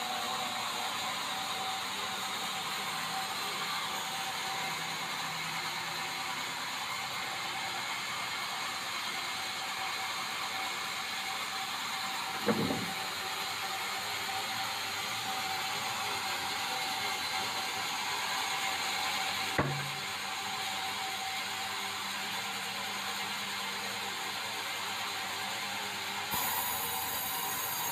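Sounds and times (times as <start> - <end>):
band saw whining: 12.1 - 20.5, 26.3 - 27.9
sharp knocks: 12.4 - 13.0, 19.6 - 20.0.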